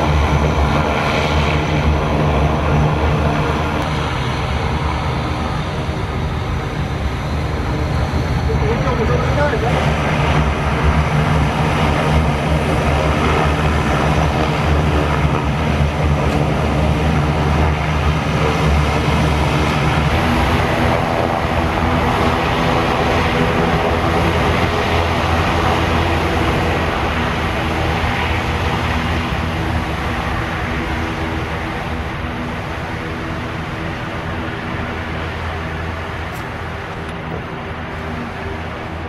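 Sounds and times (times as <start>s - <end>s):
propeller and engine rush: 0.0s - 39.0s
turboprop engines humming: 0.0s - 39.0s.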